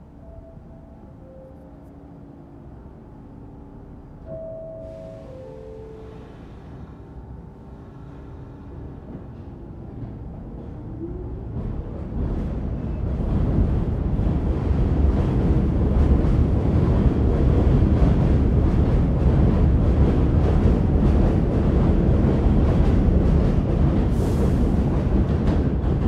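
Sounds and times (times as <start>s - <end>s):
subway train rumbling past: 0.0s - 26.0s.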